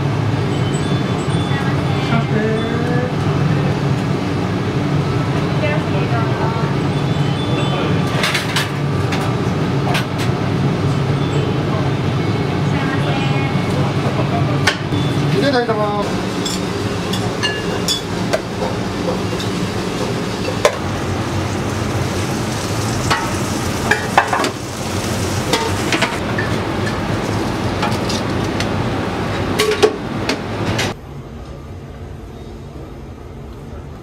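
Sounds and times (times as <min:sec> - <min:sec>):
food sizzling on a griddle: 0:16.1 - 0:26.5
metal ladles and bowls clinking: 0:16.4 - 0:20.8.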